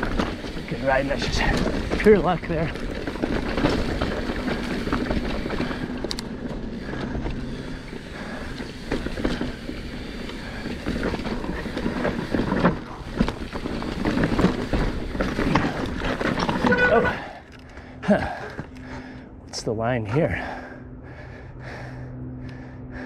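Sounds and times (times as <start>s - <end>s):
tyres crunching on dirt and stone: 0.0s - 17.4s
bike knocking and rattling: 0.0s - 19.2s.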